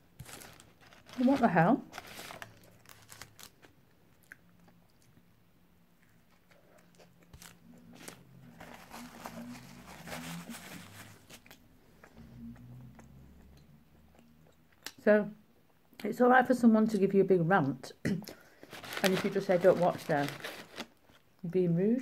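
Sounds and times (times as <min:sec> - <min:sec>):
person chewing: 0:11.4 - 0:15.0.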